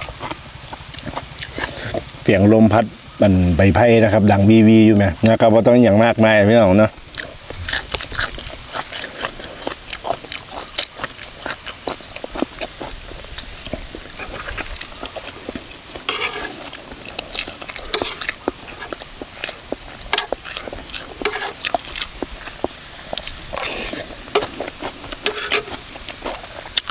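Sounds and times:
chewing and crunching: 0.0s - 26.9s
rustling: 7.1s - 26.9s.

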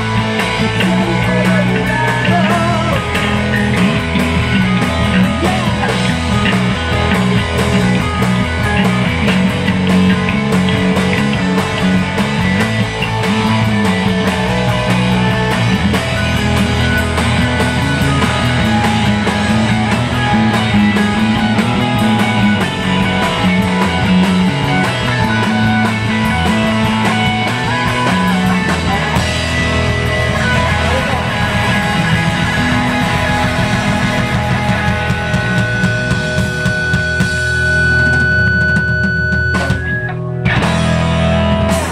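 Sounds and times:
drum kit: 0.0s - 41.9s
electric bass: 0.0s - 41.9s
electric guitars: 0.0s - 41.9s.

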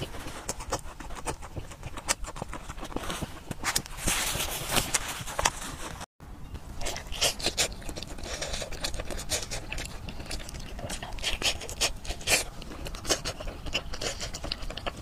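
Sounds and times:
person chewing with wet clicks: 0.0s - 3.0s, 6.8s - 15.0s
biting soft sticky food: 6.8s - 15.0s.

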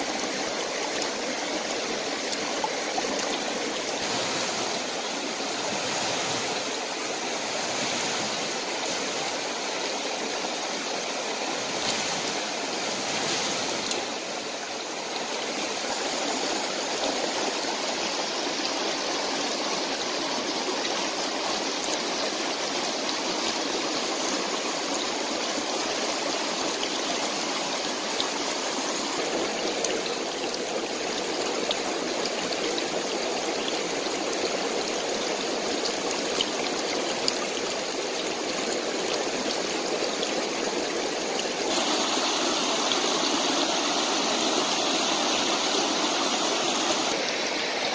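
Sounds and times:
mountain stream flowing over stones: 0.0s - 47.9s.

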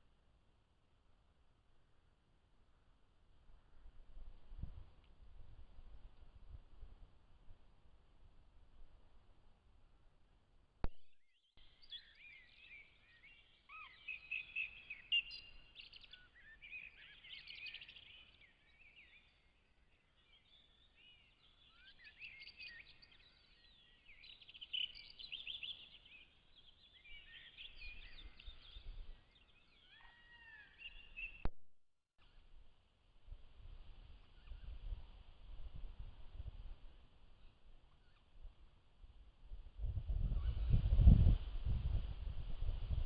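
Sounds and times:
songbirds singing: 11.0s - 31.5s, 37.3s - 38.5s.

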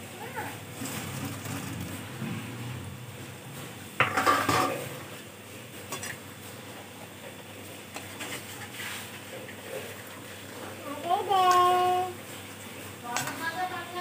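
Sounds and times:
metal ladle clanking on steel pot: 4.0s - 4.9s.

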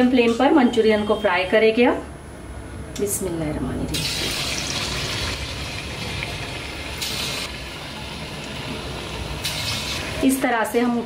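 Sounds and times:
hot oil sizzling: 4.0s - 11.0s.

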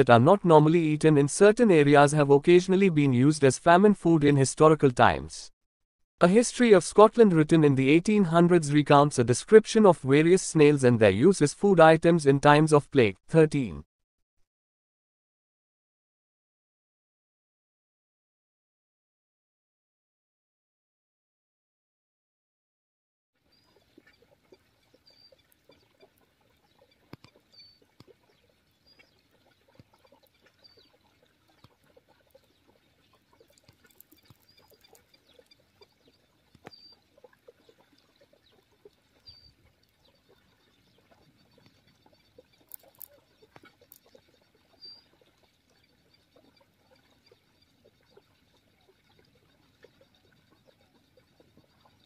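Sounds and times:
small clicks and ticks: 23.7s - 52.0s.

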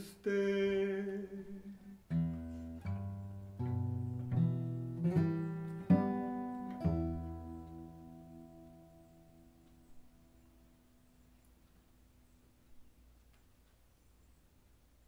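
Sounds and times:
man singing: 0.0s - 2.2s
acoustic guitars: 0.0s - 10.3s.

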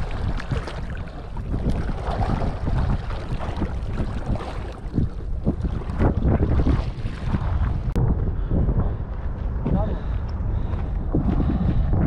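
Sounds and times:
seawater washing around rocks: 0.0s - 8.0s
wind rumbling on microphone: 0.0s - 12.0s.

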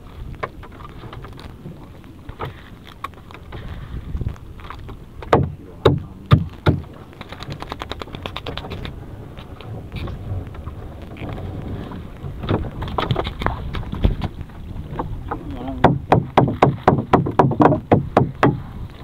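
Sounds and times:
wind: 0.0s - 19.0s
sharp knocks: 5.2s - 7.6s, 14.9s - 18.6s
hands rustling and scraping net: 6.5s - 10.2s.

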